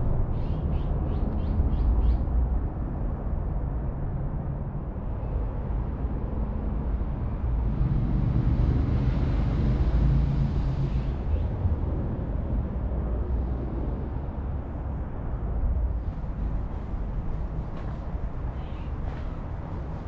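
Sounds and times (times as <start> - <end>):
vehicle passing rumble: 6.6 - 20.0.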